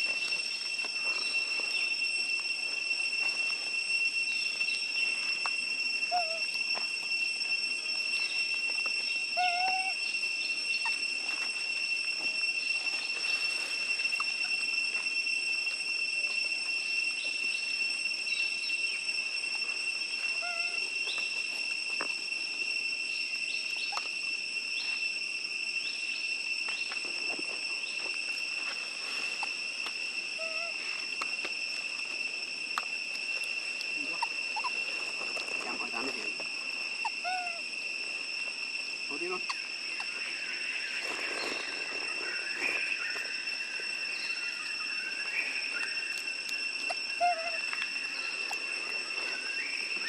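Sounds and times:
insect drone: 0:00.0 - 0:50.0
short pitched calls: 0:04.2 - 0:06.6, 0:08.0 - 0:11.7, 0:20.2 - 0:21.5, 0:28.9 - 0:31.1, 0:33.2 - 0:50.0.

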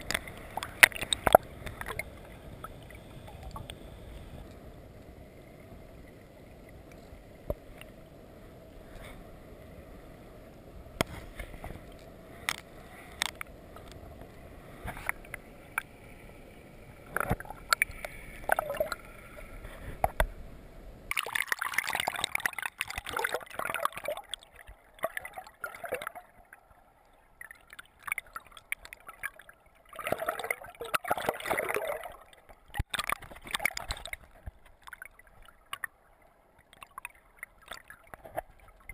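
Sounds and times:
muffled underwater rumble: 0:00.0 - 0:21.1.

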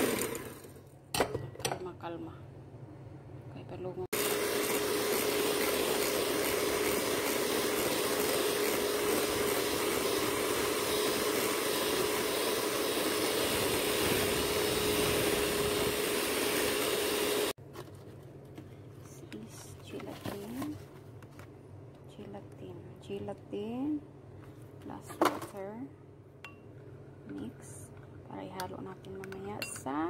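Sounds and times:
electric hand mixer whining: 0:00.0 - 0:00.7, 0:04.1 - 0:17.6
beaters whipping cream: 0:04.2 - 0:17.5.

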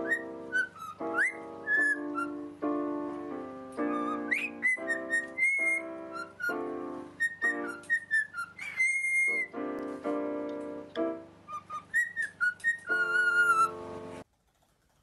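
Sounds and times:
parrot whistling: 0:00.0 - 0:02.5, 0:03.8 - 0:09.6, 0:11.5 - 0:14.0
digital piano chords: 0:00.0 - 0:14.2.

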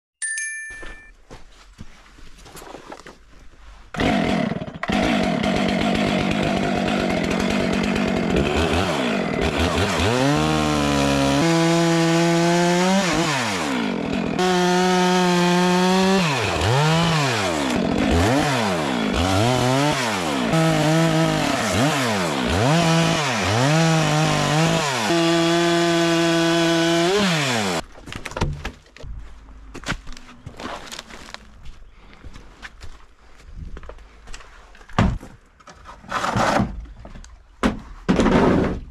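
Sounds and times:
chainsaw cutting log: 0:03.9 - 0:27.8, 0:36.0 - 0:36.8.

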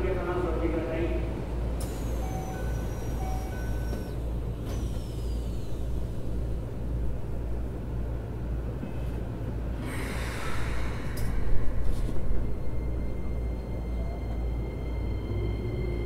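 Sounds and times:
stopped train humming: 0:00.0 - 0:16.0
air hiss: 0:09.8 - 0:12.3.

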